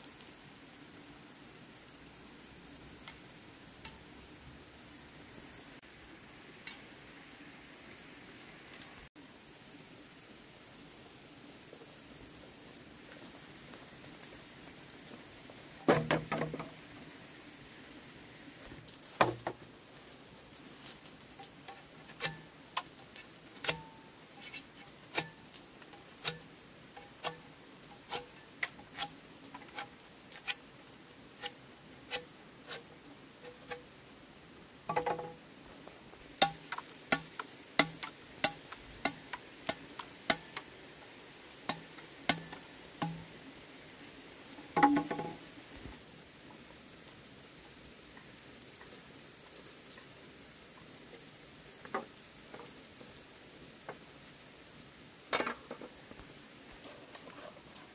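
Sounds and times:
heavy bamboo knocks: 15.9s - 16.7s, 44.8s - 45.4s
machete chopping bamboo: 36.4s - 40.5s.

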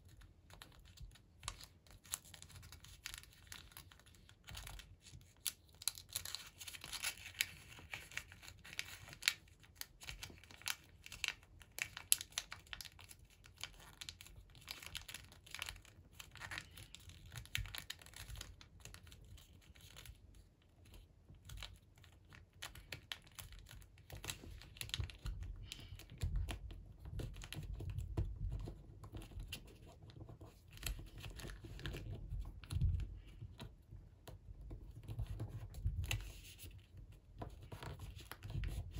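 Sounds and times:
paper rustling and crinkling: 0.1s - 38.9s.

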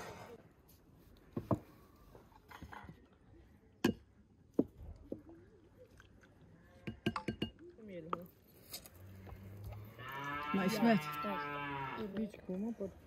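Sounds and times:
spoon knocking against bowls: 6.8s - 7.6s.

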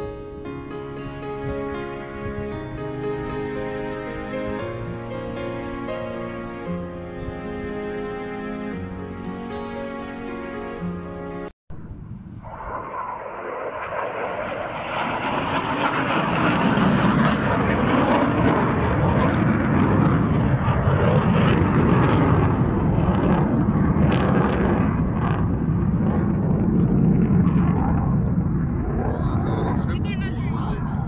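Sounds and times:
jet aircraft engine: 12.2s - 31.0s.

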